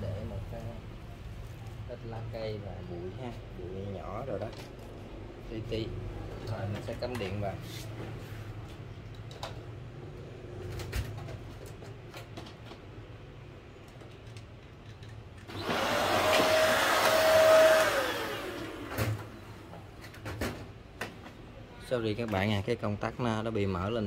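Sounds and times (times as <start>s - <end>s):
handheld vacuum motor whining: 15.5s - 19.2s.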